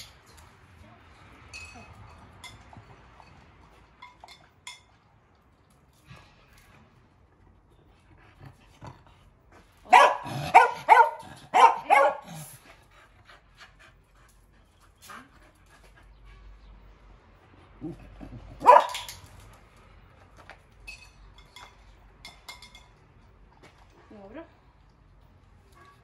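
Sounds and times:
dog barking: 0:09.9 - 0:12.4, 0:18.6 - 0:19.1.

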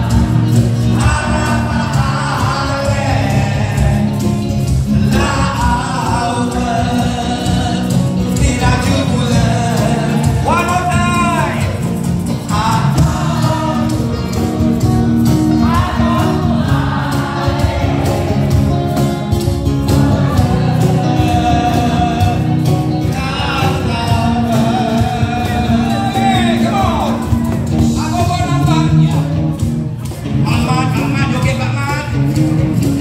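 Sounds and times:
man singing: 0:00.0 - 0:14.8, 0:20.0 - 0:29.5
live band music: 0:00.0 - 0:33.0.

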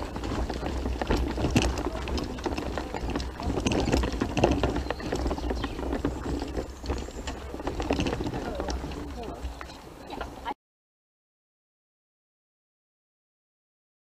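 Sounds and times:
footsteps crunching on gravel: 0:00.0 - 0:10.4.

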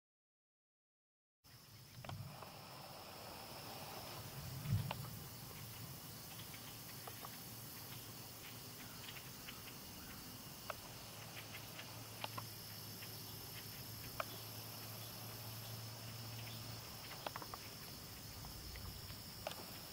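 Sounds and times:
crickets trilling: 0:01.5 - 0:19.9
light ticks and clicks: 0:04.7 - 0:14.9.

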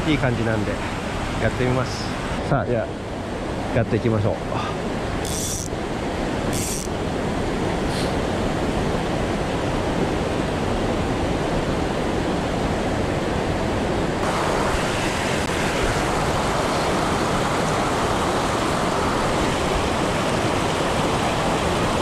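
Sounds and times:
river rapids rushing: 0:14.2 - 0:22.0.

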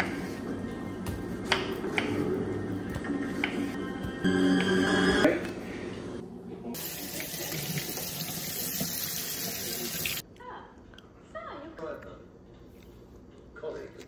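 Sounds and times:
background music: 0:00.0 - 0:06.2
tap water running into colander: 0:06.8 - 0:10.2.

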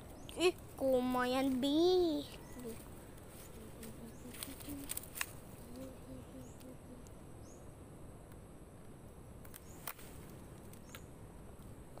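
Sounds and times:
small birds chirping: 0:00.0 - 0:07.8, 0:09.5 - 0:11.2.

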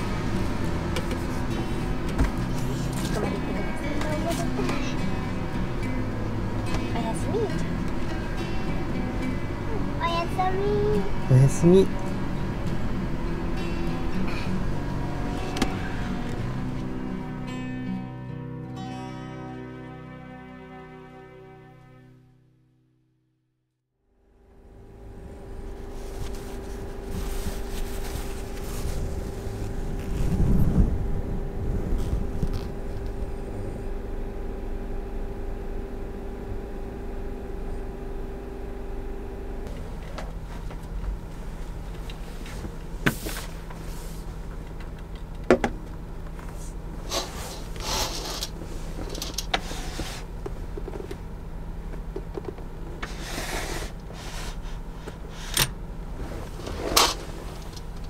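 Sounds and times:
mechanical hum with low rumble: 0:00.0 - 0:18.1, 0:24.1 - 0:58.0
short rustles: 0:25.8 - 0:31.0.

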